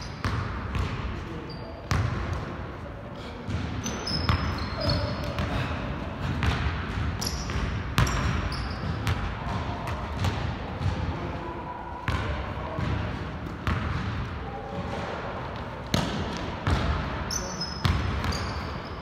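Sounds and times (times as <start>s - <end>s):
sneakers squeaking on court: 0.0s - 2.4s, 3.5s - 10.9s, 15.6s - 19.0s.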